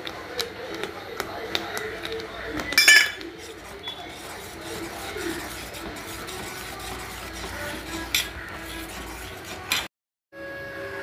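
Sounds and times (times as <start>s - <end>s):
spoon stirring thick mixture: 0.0s - 9.9s
spoon clinking on pan: 2.8s - 3.2s.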